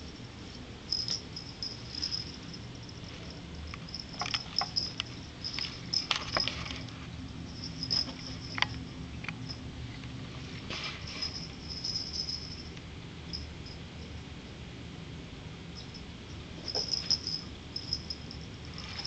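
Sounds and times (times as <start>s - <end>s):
low steady hum: 0.0s - 19.0s
cats pawing and scratching: 0.9s - 12.6s, 18.6s - 19.0s.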